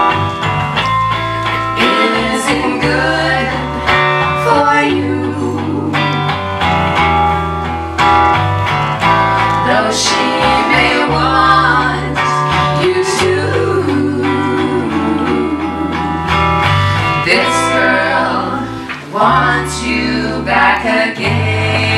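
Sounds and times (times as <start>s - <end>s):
guitar accompaniment: 0.0s - 21.9s
women singing together: 1.7s - 6.4s, 9.6s - 21.9s.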